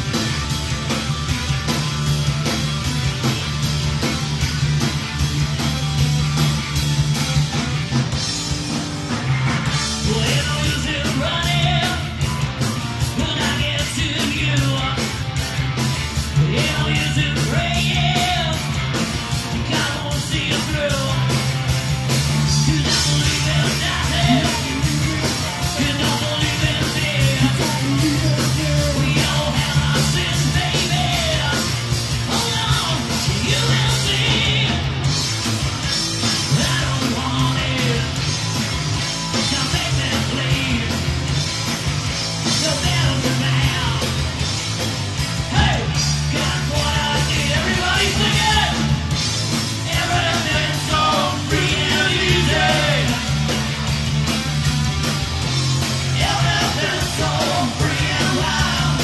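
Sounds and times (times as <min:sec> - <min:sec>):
electric guitars: 0:00.0 - 0:59.0
steady drum beat: 0:00.0 - 0:59.0
man singing into microphone: 0:22.7 - 0:31.7, 0:49.9 - 0:53.2, 0:56.2 - 0:59.0.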